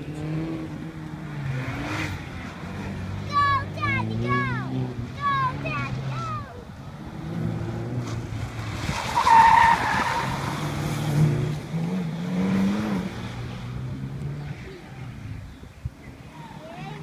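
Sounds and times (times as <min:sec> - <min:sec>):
sports car engine revving: 0:00.0 - 0:06.4, 0:07.0 - 0:15.2
tires squealing: 0:07.2 - 0:13.6.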